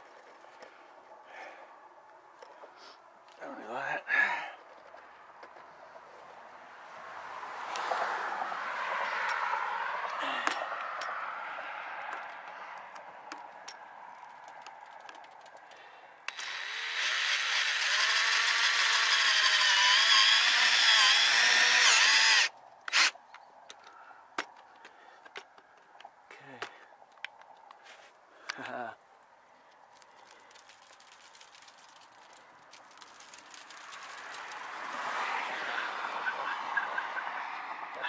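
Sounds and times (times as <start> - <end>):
cordless drill driving screw into metal: 16.3 - 23.2.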